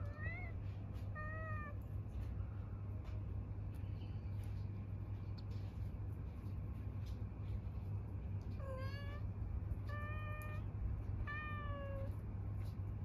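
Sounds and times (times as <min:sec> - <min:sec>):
cat meowing: 0:00.0 - 0:01.8, 0:08.6 - 0:12.2.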